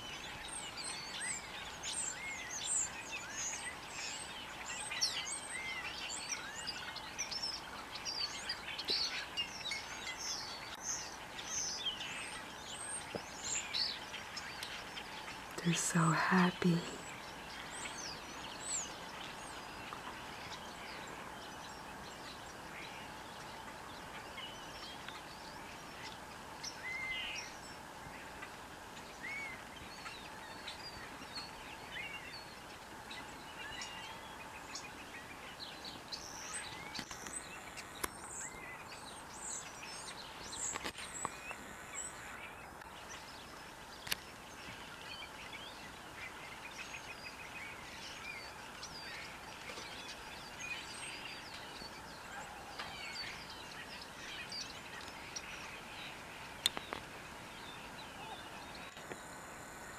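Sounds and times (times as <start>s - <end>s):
outdoor hiss: 10.3s - 30.4s.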